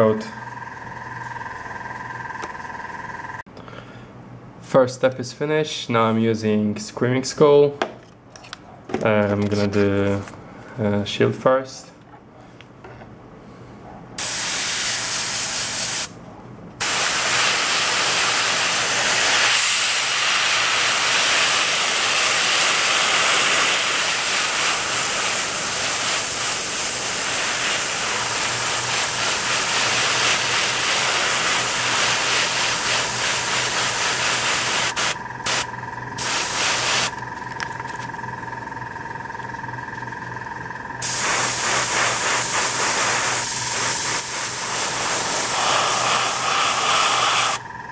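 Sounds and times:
airbrush hissing: 0:14.2 - 0:16.1, 0:16.8 - 0:37.1, 0:41.0 - 0:47.6.

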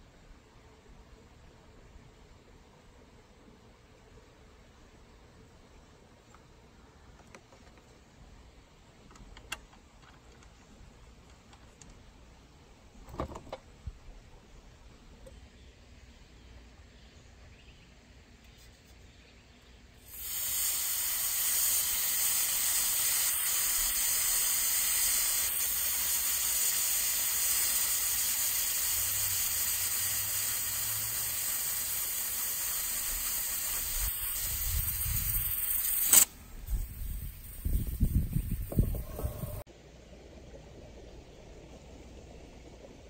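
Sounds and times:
gas hissing from canister: 0:20.0 - 0:39.7.

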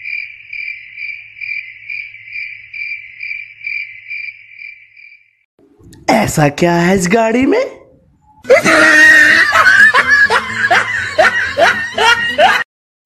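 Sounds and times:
cricket chirping: 0:00.0 - 0:05.4.

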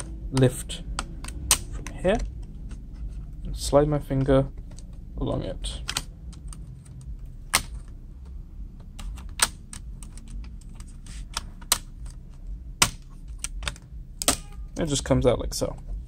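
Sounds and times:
plastic clips clicking and snapping: 0:00.0 - 0:02.9, 0:08.8 - 0:14.5.

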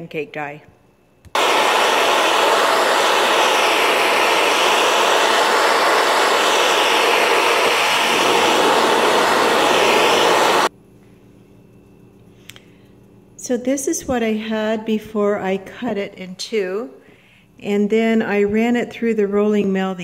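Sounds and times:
torch flame hissing: 0:01.4 - 0:10.7.

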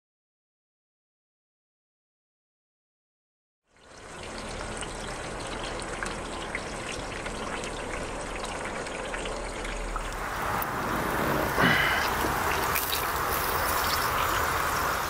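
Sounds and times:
fire crackling and popping: 0:10.0 - 0:15.0
flames hissing: 0:10.2 - 0:15.0.

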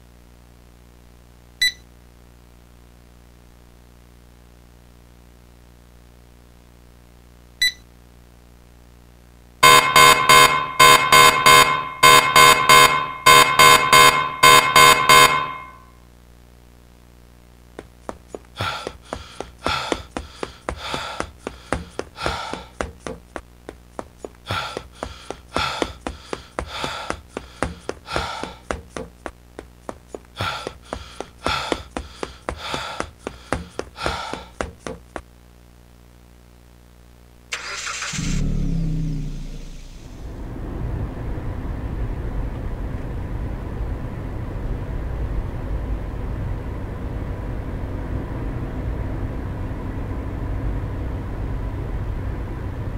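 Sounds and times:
electronic buzzer alarm pulsing: 0:09.6 - 0:15.9
noise burst with low rumble: 0:38.2 - 0:52.9.

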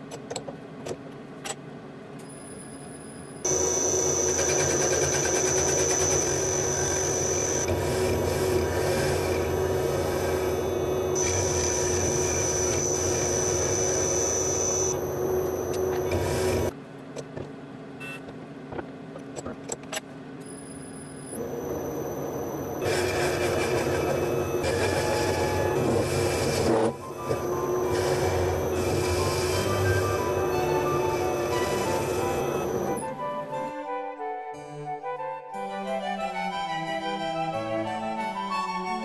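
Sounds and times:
high whistle: 0:03.4 - 0:16.7, 0:20.5 - 0:39.0
metal lathe hum: 0:03.4 - 0:16.7, 0:21.3 - 0:33.7.

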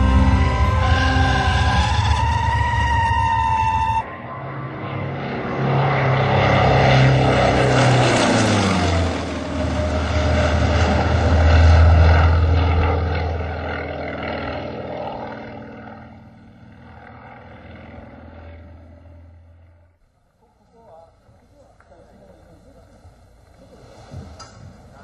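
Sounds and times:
propeller plane flying past: 0:00.0 - 0:20.0.

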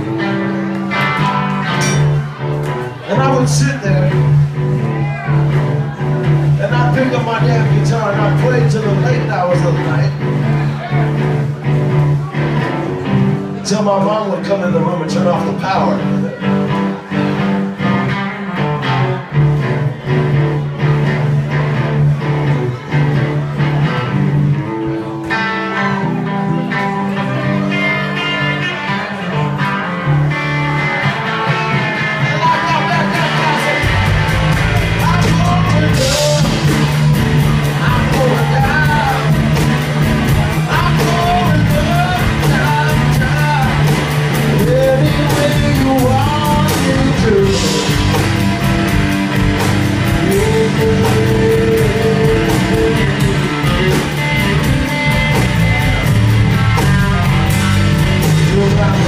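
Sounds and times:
live rock band playing: 0:00.0 - 0:59.0
person singing: 0:30.4 - 0:59.0.

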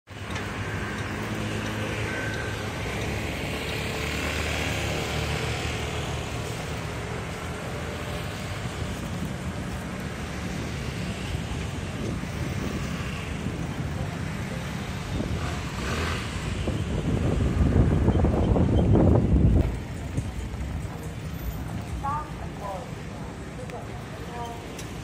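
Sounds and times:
road traffic noise: 0:00.0 - 0:25.0.

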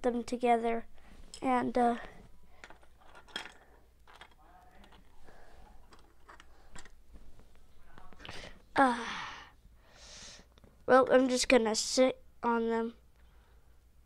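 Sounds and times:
plastic pieces clicking on floor: 0:02.6 - 0:05.0.

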